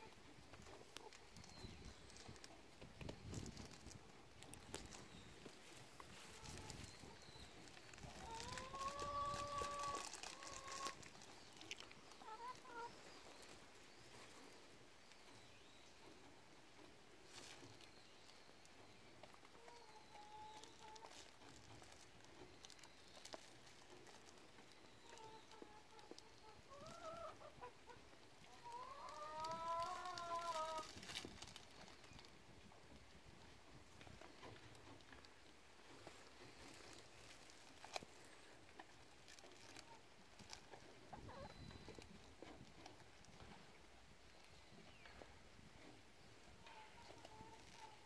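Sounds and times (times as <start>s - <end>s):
hen calling: 5.7s - 11.1s.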